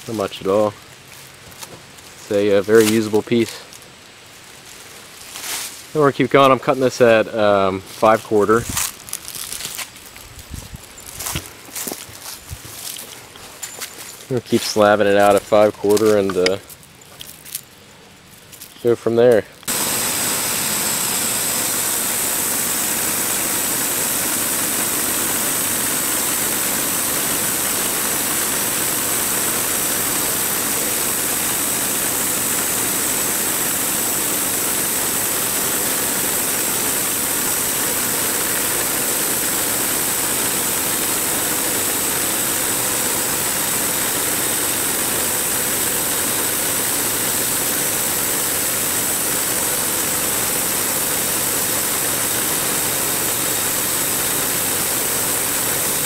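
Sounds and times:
sawmill engine running under load: 0:19.6 - 0:56.0
band blade sawing log: 0:19.7 - 0:56.0.

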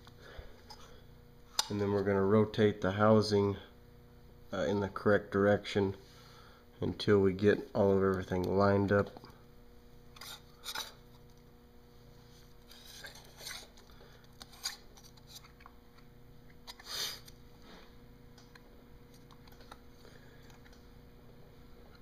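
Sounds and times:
steady low hum: 0:00.0 - 0:22.0
pump housing scuffs and scrapes: 0:12.2 - 0:13.8.

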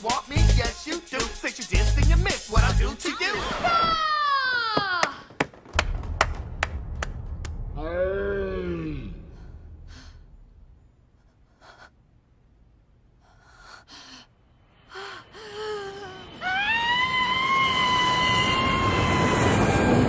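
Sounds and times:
rushing noise: 0:05.8 - 0:11.3.

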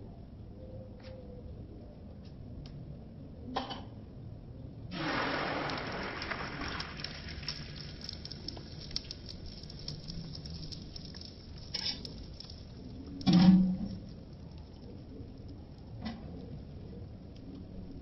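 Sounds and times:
egg sizzling in hot oil: 0:05.0 - 0:12.5.

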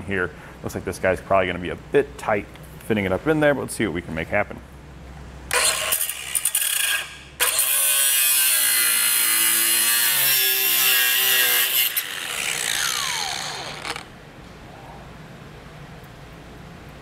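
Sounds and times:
cutoff wheel cutting metal: 0:05.5 - 0:14.1
wheel spinning down whine: 0:12.0 - 0:14.1.

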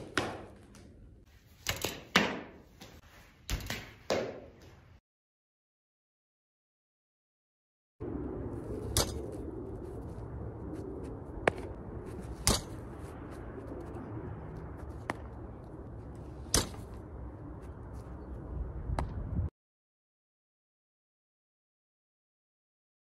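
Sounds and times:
baseball hitting rebound net: 0:00.0 - 0:00.6, 0:03.5 - 0:04.6, 0:11.4 - 0:13.1, 0:16.4 - 0:17.0
steady low rumble: 0:08.0 - 0:19.5.

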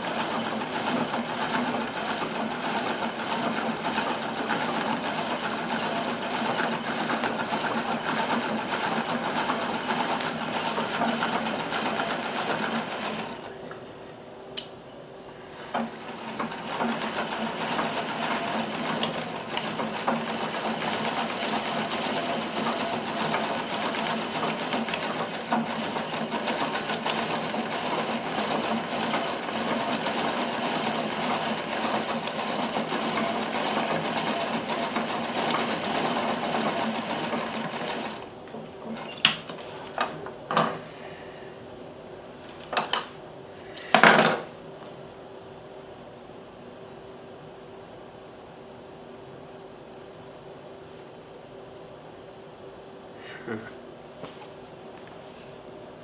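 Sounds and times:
treadle sewing machine stitching: 0:00.0 - 0:13.5, 0:15.6 - 0:39.3.

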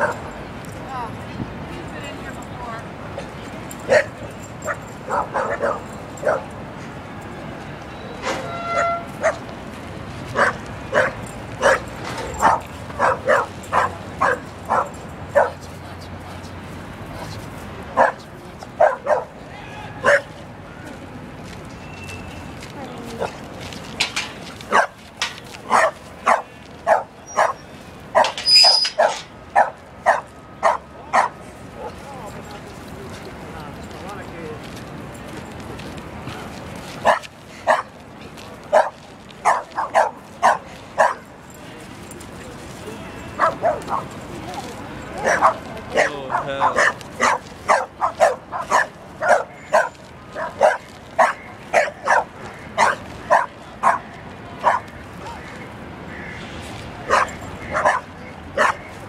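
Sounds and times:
dog barking: 0:03.9 - 0:06.5, 0:08.8 - 0:09.4, 0:10.4 - 0:15.6, 0:18.0 - 0:18.2, 0:18.8 - 0:19.4, 0:20.0 - 0:20.3, 0:24.7 - 0:25.0, 0:25.7 - 0:27.6, 0:28.2 - 0:28.4, 0:29.0 - 0:32.0, 0:37.0 - 0:37.9, 0:38.7 - 0:41.2, 0:43.4 - 0:44.1, 0:45.2 - 0:54.9, 0:57.1 - 0:58.9.

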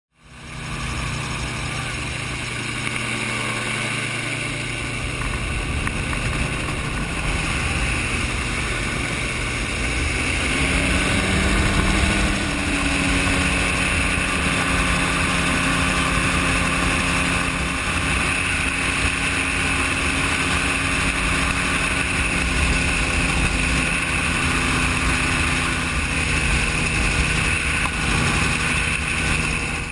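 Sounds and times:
gyrocopter engine and propeller: 0:00.1 - 0:29.9
wind rushing past cockpit: 0:00.6 - 0:29.9.

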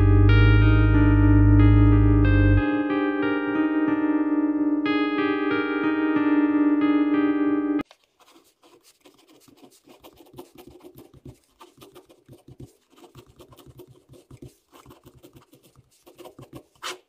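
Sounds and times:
pen scratching on paper: 0:08.1 - 0:17.0.

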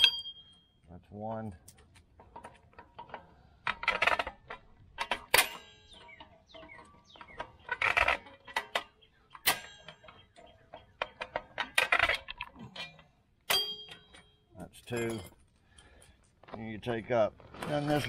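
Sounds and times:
metal clicks and clanks: 0:00.0 - 0:16.6
metal scraping: 0:01.8 - 0:15.5, 0:17.4 - 0:18.0.

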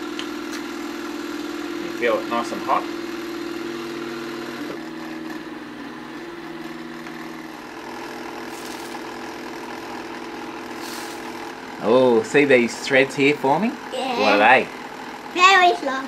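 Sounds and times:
cotton candy machine motor hum: 0:00.0 - 0:16.0
sugar pouring hiss: 0:08.3 - 0:09.2, 0:10.6 - 0:11.6.

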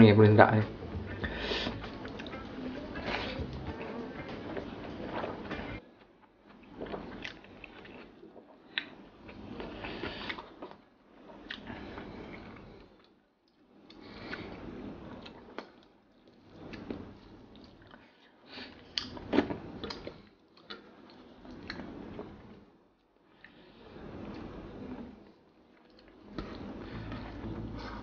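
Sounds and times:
close chewing: 0:00.8 - 0:05.8.

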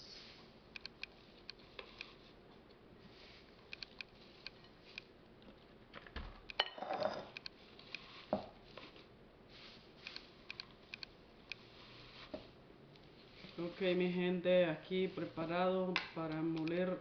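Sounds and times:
small clicks: 0:00.7 - 0:02.2, 0:03.7 - 0:05.1, 0:10.0 - 0:11.6
dried leaves rustling and crackling: 0:11.6 - 0:16.6.

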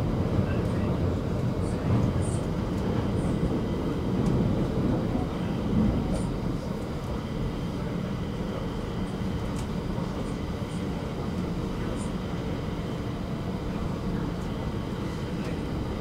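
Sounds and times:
train wheels rumbling on rails: 0:00.0 - 0:16.0.

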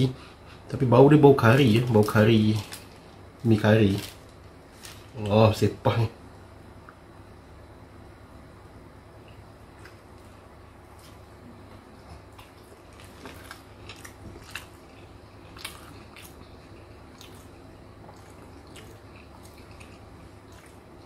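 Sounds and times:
man chewing food: 0:09.2 - 0:21.0.

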